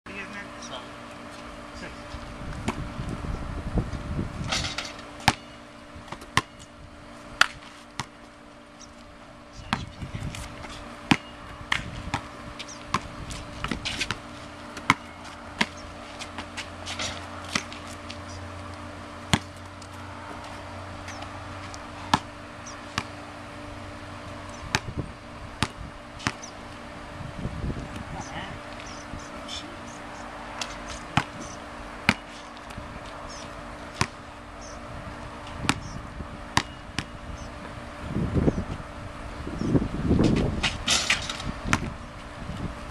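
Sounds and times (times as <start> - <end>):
low rumbling noise: 1.7 - 6.1
basketball bouncing on concrete: 2.6 - 3.0, 4.5 - 6.7, 7.4 - 8.3, 9.6 - 18.2, 19.2 - 23.2, 24.6 - 25.0, 25.6 - 26.5, 30.6 - 34.2, 35.5 - 37.2, 40.2 - 42.0.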